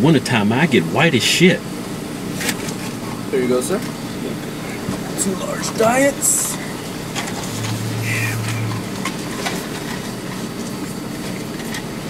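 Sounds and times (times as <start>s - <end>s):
low hum: 7.2s - 9.4s.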